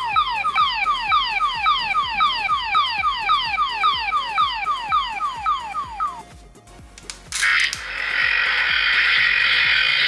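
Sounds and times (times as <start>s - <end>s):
toy falling electronic beeps: 0.0s - 6.2s.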